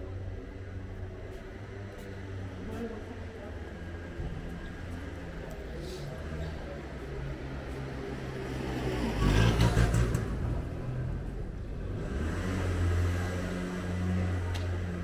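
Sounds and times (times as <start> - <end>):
vehicle passing close by: 8.3 - 10.9.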